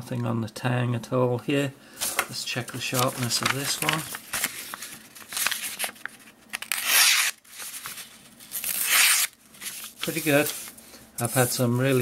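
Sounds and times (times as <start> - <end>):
knife slicing paper: 6.6 - 7.9, 8.5 - 10.6.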